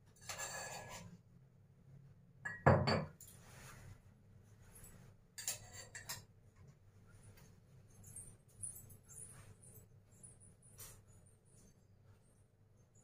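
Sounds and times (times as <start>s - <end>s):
metal spoon scraping steel bowl: 0.2s - 1.2s, 5.4s - 6.3s.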